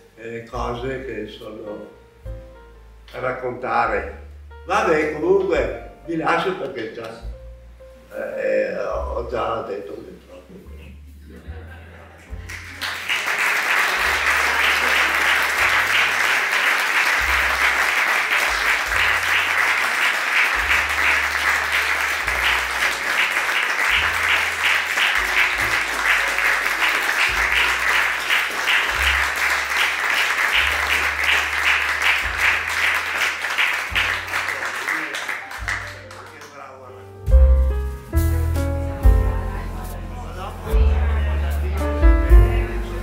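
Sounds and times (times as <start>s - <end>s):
audience applauding: 12.3s - 36.8s.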